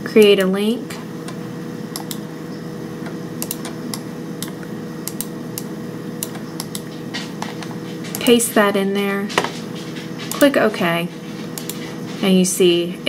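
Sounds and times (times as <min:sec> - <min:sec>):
keyboard and mouse clicks: 0:01.3 - 0:02.2, 0:03.0 - 0:08.4, 0:09.4 - 0:10.5, 0:11.5 - 0:11.8.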